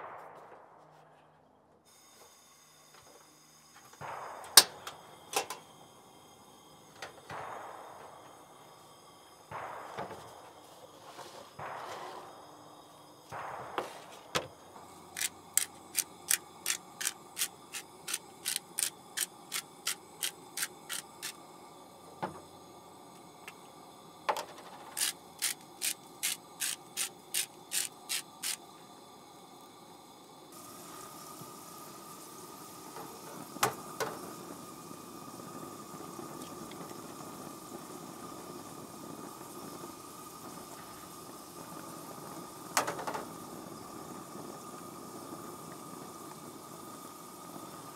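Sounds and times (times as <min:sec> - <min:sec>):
potatoes frying in a pan: 0:15.0 - 0:21.5, 0:24.4 - 0:29.0, 0:30.5 - 0:47.9
egg frying: 0:15.0 - 0:28.9, 0:30.5 - 0:47.9
spice grinder clicking: 0:15.2 - 0:21.4, 0:24.3 - 0:28.6.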